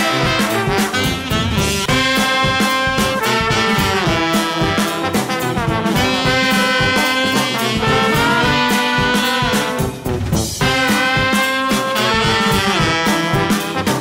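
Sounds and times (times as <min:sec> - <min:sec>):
brass background music with beat: 0:00.0 - 0:14.0.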